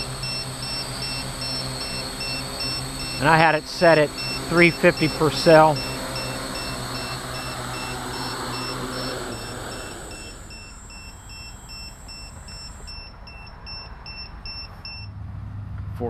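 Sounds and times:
short high warning beeps: 0:00.0 - 0:15.1
drone motors winding down: 0:00.0 - 0:15.2.

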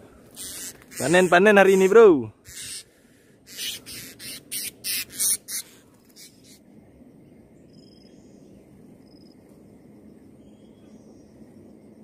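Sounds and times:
thin high bird calls: 0:00.3 - 0:06.7
parrot harsh screeches: 0:00.4 - 0:02.9, 0:03.5 - 0:06.6.

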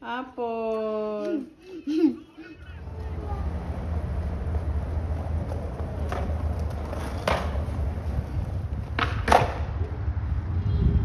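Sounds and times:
skateboard wheels rolling on concrete: 0:02.6 - 0:10.8
skateboard clacks: 0:02.8 - 0:10.0.

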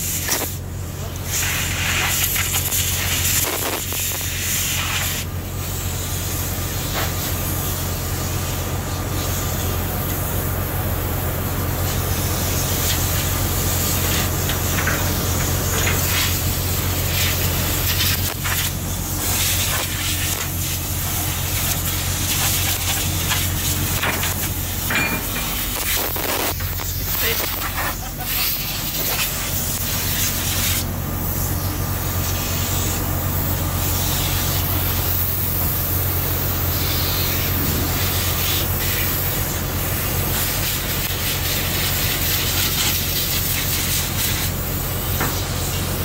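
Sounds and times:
low machinery hum: 0:00.0 - 0:46.0
rushing ventilation hiss: 0:00.0 - 0:46.0
hand tools clinking on metal: 0:24.8 - 0:25.6.

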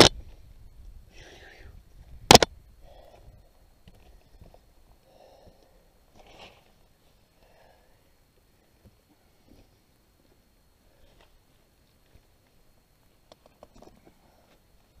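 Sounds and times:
person breathing: 0:00.2 - 0:01.9, 0:02.8 - 0:06.1, 0:07.1 - 0:09.7, 0:10.8 - 0:11.6
hand scraping rock: 0:06.1 - 0:06.8.

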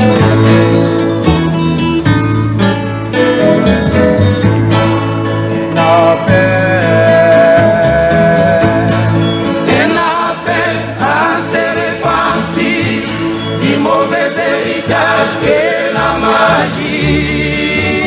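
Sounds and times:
acoustic guitars: 0:00.0 - 0:18.0
male choir singing a hymn: 0:05.8 - 0:18.0.

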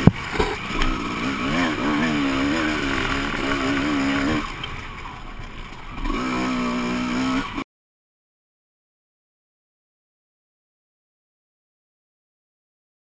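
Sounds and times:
two-stroke motorcycle engine: 0:00.0 - 0:07.6.

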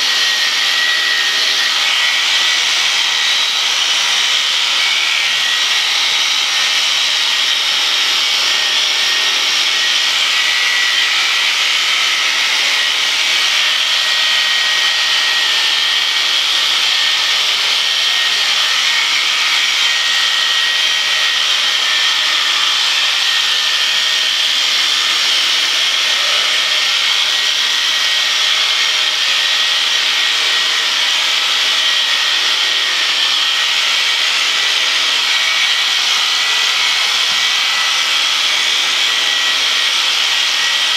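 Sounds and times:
electric sheep shears buzzing: 0:00.0 - 0:40.9.

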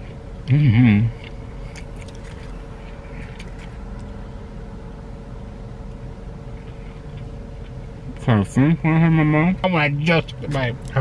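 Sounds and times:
low hum inside car: 0:00.0 - 0:11.0
wrapper crinkles and eating clicks: 0:01.7 - 0:02.6.

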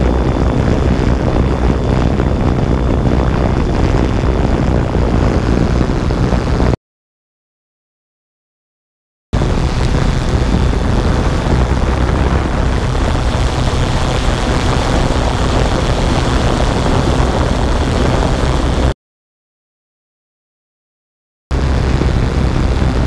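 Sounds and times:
drone propellers and wind rushing: 0:00.0 - 0:06.8, 0:09.4 - 0:19.0, 0:21.5 - 0:23.0.

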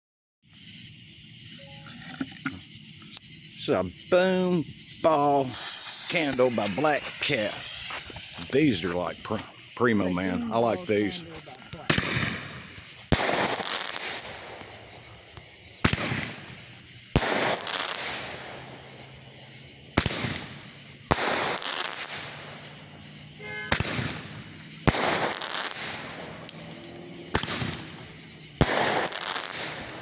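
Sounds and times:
firework shot bursting: 0:05.0 - 0:08.8, 0:11.7 - 0:19.2, 0:19.8 - 0:30.0
firework bang: 0:05.1 - 0:08.7, 0:11.7 - 0:19.1, 0:19.9 - 0:22.7, 0:23.4 - 0:30.0.

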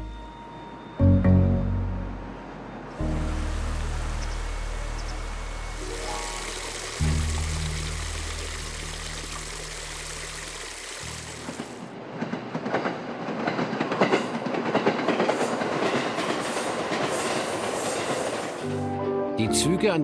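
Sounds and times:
low held music notes: 0:00.0 - 0:10.1
train wheels clattering over rails: 0:11.5 - 0:18.6.

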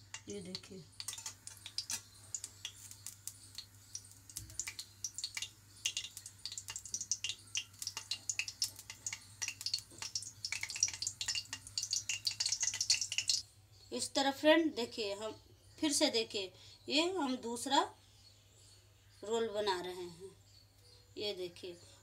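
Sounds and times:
hot oil crackling and spitting: 0:00.0 - 0:13.4.

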